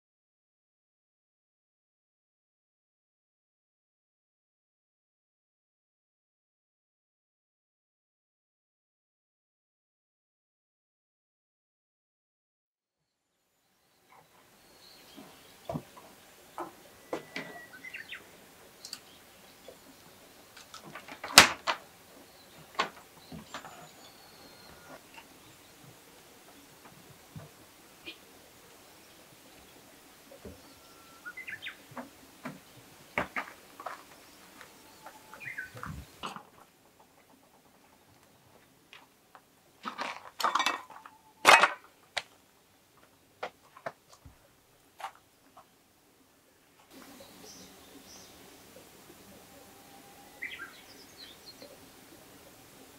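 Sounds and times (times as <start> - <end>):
faint high bird chirps: 13.0 - 20.9, 21.8 - 26.8, 28.0 - 32.0, 33.8 - 36.3, 46.9 - 52.9.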